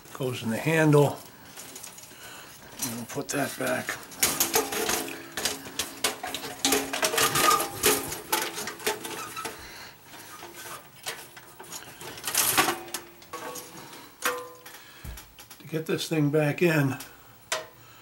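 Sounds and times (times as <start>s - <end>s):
sheet metal scraping and rattling: 2.8s - 14.7s
metal clank: 3.6s - 9.6s, 10.2s - 14.8s.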